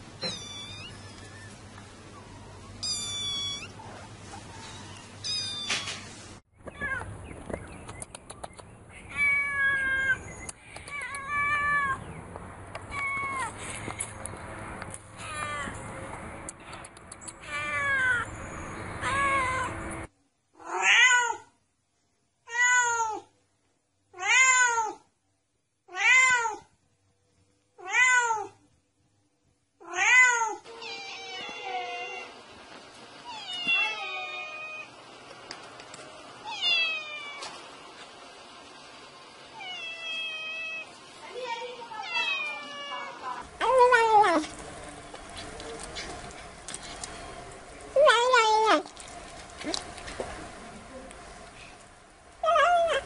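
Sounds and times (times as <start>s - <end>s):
cat meowing: 0.2s - 1.4s, 2.8s - 3.8s, 4.6s - 6.0s, 9.1s - 10.2s, 10.9s - 12.0s, 17.4s - 18.3s, 19.0s - 19.8s, 20.6s - 21.5s, 24.2s - 25.0s, 25.9s - 26.7s, 27.8s - 28.6s, 29.8s - 32.3s, 33.2s - 34.9s, 36.4s - 37.6s, 39.6s - 40.9s, 41.9s - 44.5s.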